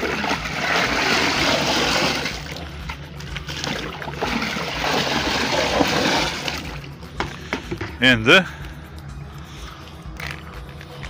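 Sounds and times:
water sloshing in a barrel: 0.0 - 8.0.

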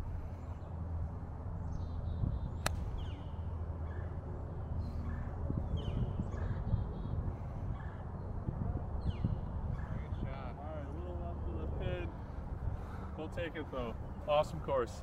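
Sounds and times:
birds chirping: 1.7 - 4.2, 9.0 - 10.6
golf club striking ball: 2.6 - 3.0.

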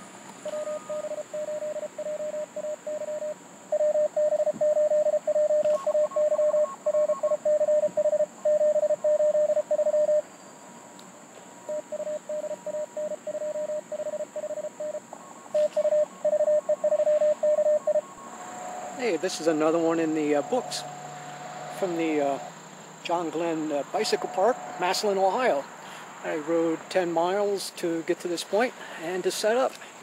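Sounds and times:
morse code tones: 0.4 - 10.2, 11.7 - 22.5, 23.1 - 25.6.

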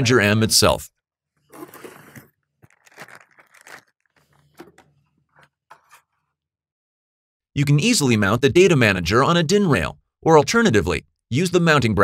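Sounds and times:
cardboard box rustling and scraping: 1.5 - 6.1.

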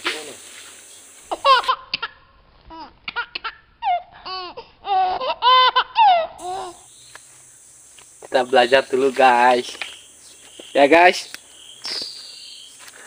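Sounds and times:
high-pitched giggling laughter: 1.3 - 2.2, 3.1 - 6.8.

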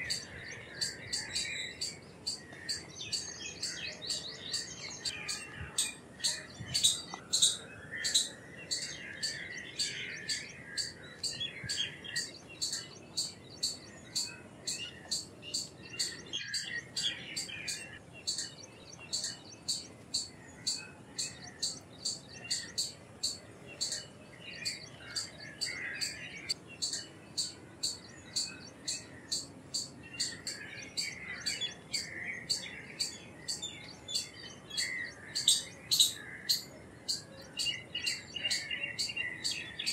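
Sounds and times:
soft squirrel chirps: 6.7 - 8.3, 26.8 - 28.6.

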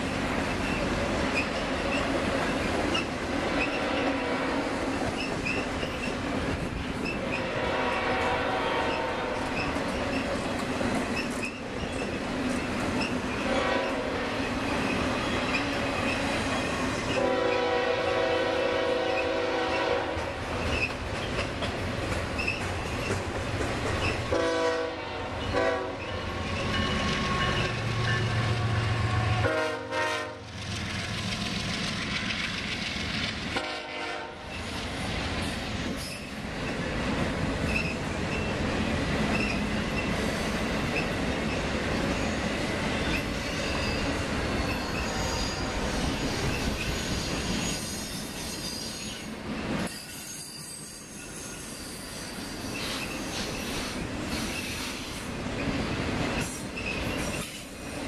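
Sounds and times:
train wheels rumbling on rails: 0.0 - 58.0
locomotive horn: 3.6 - 4.7, 7.3 - 9.6, 13.4 - 14.4, 17.1 - 20.4, 24.3 - 26.4, 27.0 - 30.5, 33.6 - 34.5.

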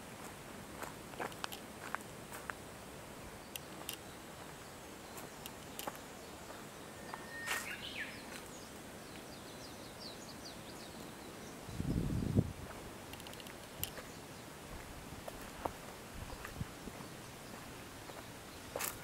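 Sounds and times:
faint steady hiss: 0.0 - 19.0
high bird chirps: 6.8 - 8.4
light clicks: 13.1 - 14.0.

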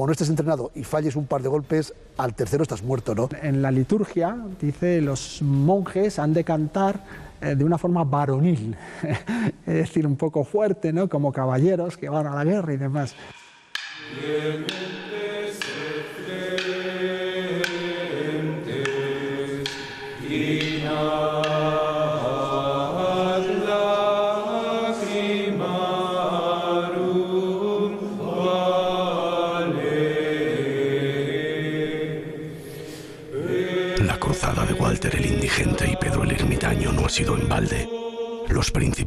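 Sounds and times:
sharp knocks: 13.1 - 22.5
men chanting plainchant: 13.1 - 32.6, 33.3 - 39.0.

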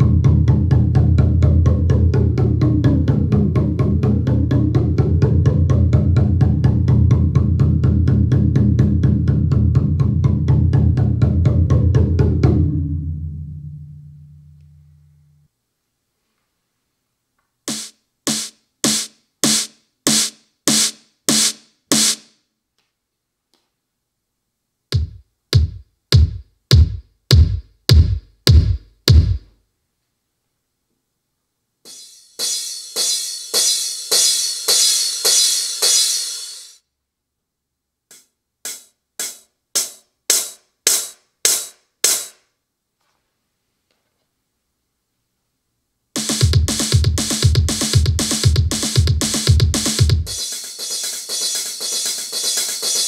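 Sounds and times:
snappy electronic drum hits: 17.7 - 22.3, 24.9 - 29.5, 38.1 - 42.4, 46.2 - 53.0
electronic kick drum hits: 25.0 - 29.4, 46.2 - 53.0.

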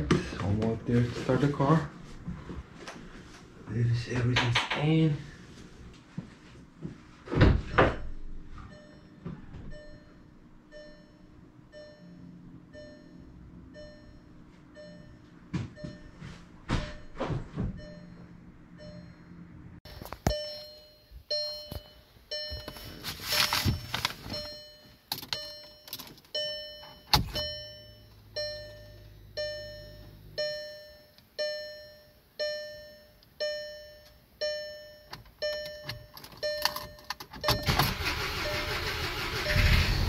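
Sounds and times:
bell-like warning chime: 8.7 - 17.2, 17.8 - 19.5, 20.3 - 38.7
car engine cranking and starting: 35.9 - 40.0.

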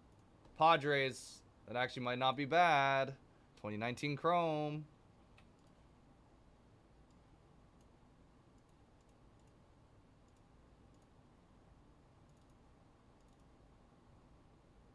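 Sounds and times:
computer mouse clicks: 5.3 - 5.8, 7.0 - 9.6, 10.2 - 11.2, 12.2 - 12.6, 13.2 - 13.6.

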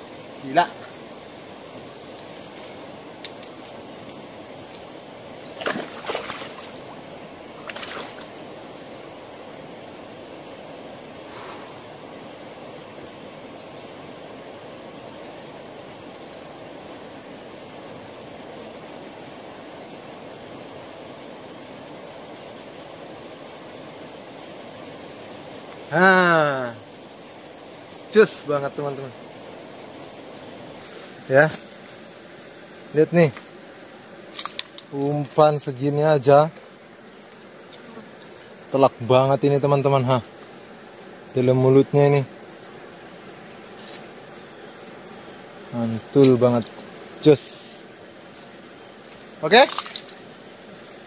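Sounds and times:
river ambience: 0.0 - 41.8
high insect hum: 0.0 - 51.0
fish splashing at water surface: 5.6 - 6.8, 7.6 - 8.3.

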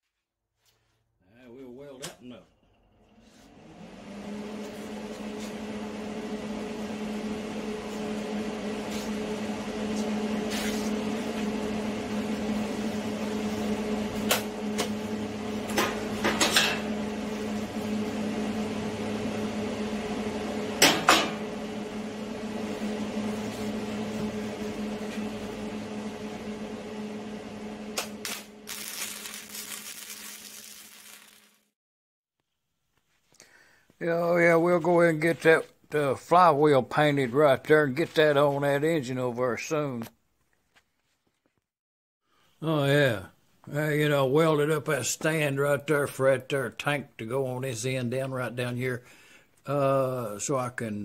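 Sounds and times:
electrical hum: 1.8 - 31.3
welding arc crackling: 28.0 - 31.7.

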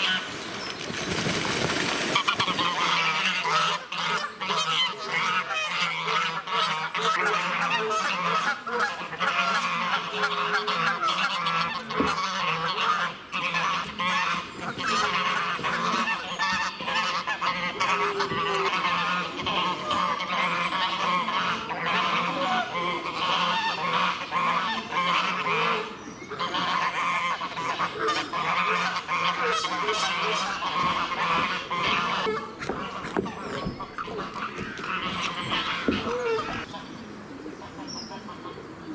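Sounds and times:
geese honking: 0.0 - 0.4, 2.0 - 38.6.

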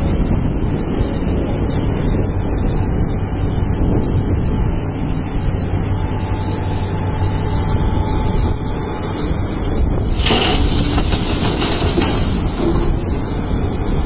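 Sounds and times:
excavator diesel engine: 0.0 - 14.0
rock pouring into truck: 10.1 - 13.2.

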